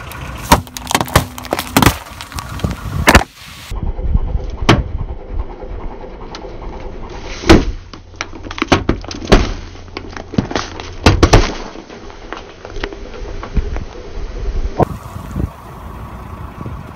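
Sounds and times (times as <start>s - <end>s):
cans crushed under car tyre: 0.0s - 3.4s, 7.5s - 13.0s.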